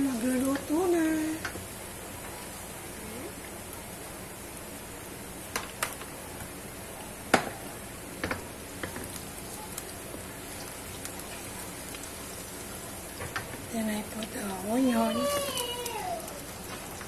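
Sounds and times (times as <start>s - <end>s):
garlic sizzling in oil: 0.0s - 17.0s.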